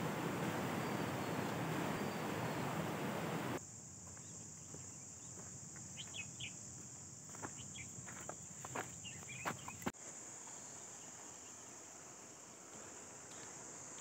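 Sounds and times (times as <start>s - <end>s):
high bird chirps: 0.0s - 3.6s
insects droning: 0.0s - 14.0s
rushing outdoor hiss: 0.0s - 14.0s.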